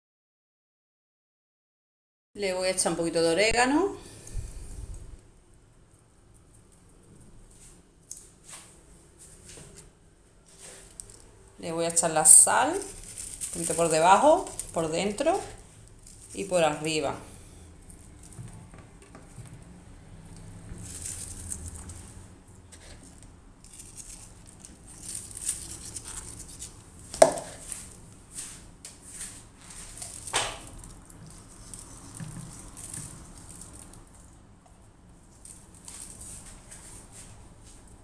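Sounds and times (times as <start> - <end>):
fish rustling in oven dish: 10.4 - 18.5, 19.2 - 34.5.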